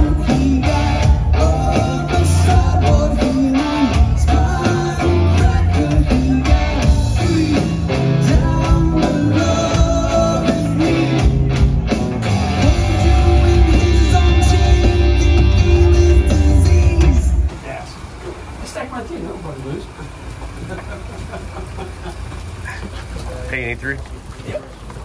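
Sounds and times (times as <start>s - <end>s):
lead singer: 0.0s - 11.6s, 12.2s - 17.5s
bass guitar: 0.0s - 17.6s
electric guitars: 0.0s - 17.6s
drum kit: 0.0s - 17.8s.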